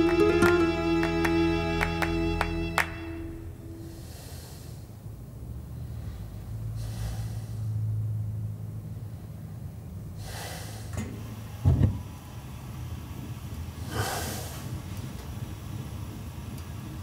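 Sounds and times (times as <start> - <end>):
person breathing while asleep: 3.7 - 5.0, 5.6 - 8.0, 8.8 - 11.0, 13.8 - 14.8.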